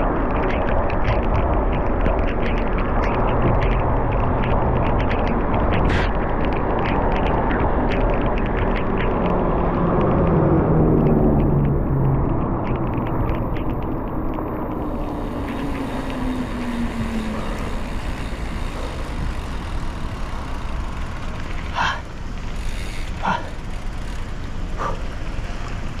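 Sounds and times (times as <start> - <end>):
passing motor vehicle: 0.0 - 26.0
wind and bicycle road rumble: 0.0 - 26.0.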